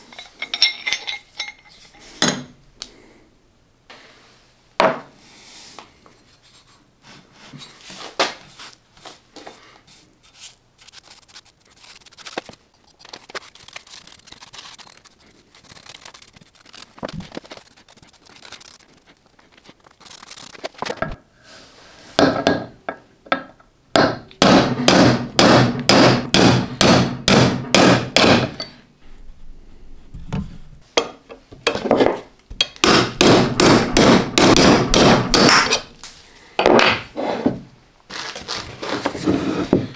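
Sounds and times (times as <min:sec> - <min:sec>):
light knocks and clinks: 0:00.0 - 0:02.9
rapid repeated tool strokes: 0:10.3 - 0:20.9.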